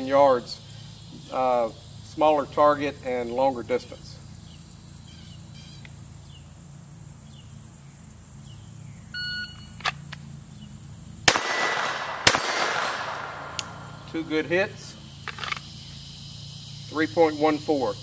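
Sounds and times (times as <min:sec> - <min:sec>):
pistol shots: 0:11.2 - 0:14.2.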